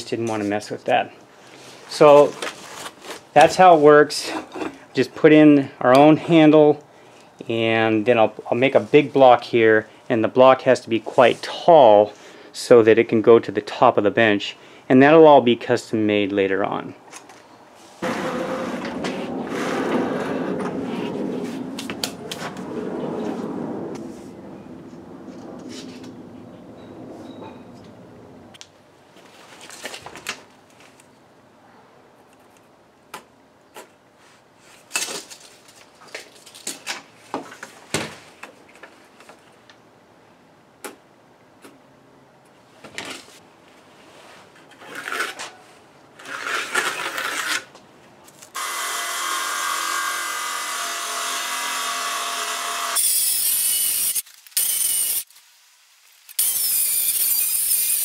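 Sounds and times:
circular saw cutting wood: 18.0s - 21.2s, 48.6s - 55.3s, 56.3s - 58.0s
tape measure and pencil on wood: 44.5s - 45.6s, 46.2s - 47.7s, 48.3s - 58.0s.

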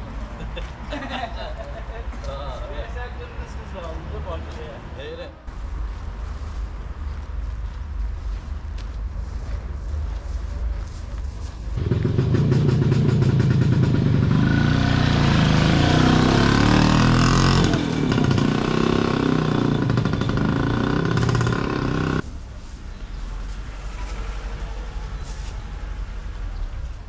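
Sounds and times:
loud motor engine running: 11.8s - 22.2s.

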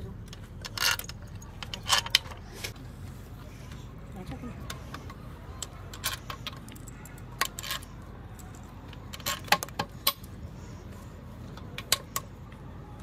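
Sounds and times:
low background noise: 0.0s - 13.0s
metal parts clinking: 0.2s - 2.7s, 5.6s - 10.4s.

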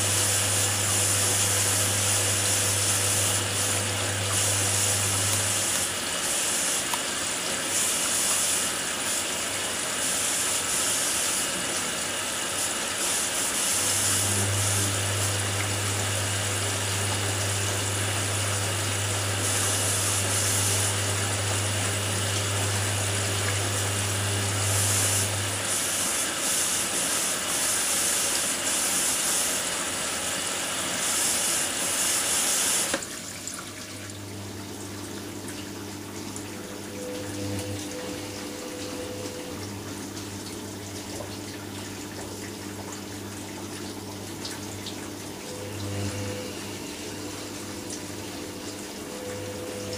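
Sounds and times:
drain pump humming: 0.0s - 49.9s
washing machine drum motor humming: 0.0s - 49.9s
water running into washing machine: 0.0s - 49.9s.

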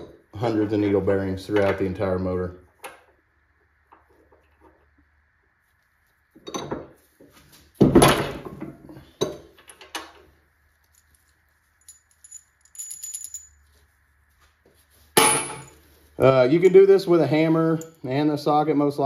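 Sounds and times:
metallic jingle: 10.8s - 13.8s
metal parts clattering: 10.9s - 13.5s.

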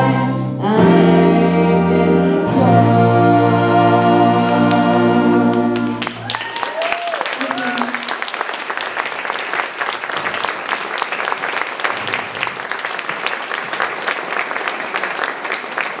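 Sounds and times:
audience applauding: 4.5s - 16.0s.

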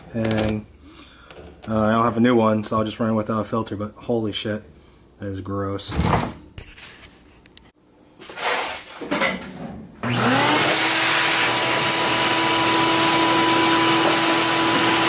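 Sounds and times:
shop vac motor whining: 10.0s - 15.0s
knocks and scrapes of shop vac: 13.2s - 15.0s.

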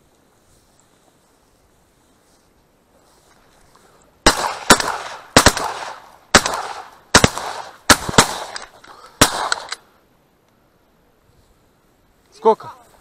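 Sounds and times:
shotgun shots echoing: 4.2s - 9.8s.

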